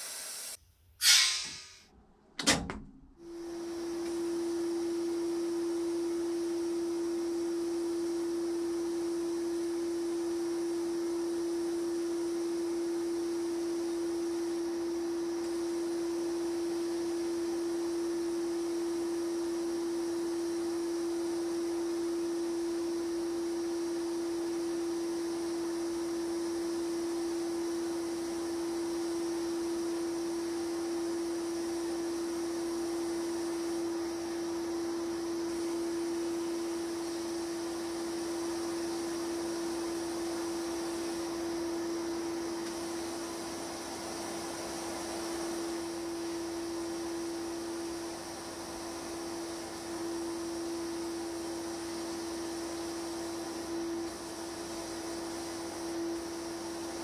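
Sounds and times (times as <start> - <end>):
blast gun air hiss: 0.0 - 1.8
sandblasting cabinet hum: 0.0 - 1.8, 3.2 - 57.0.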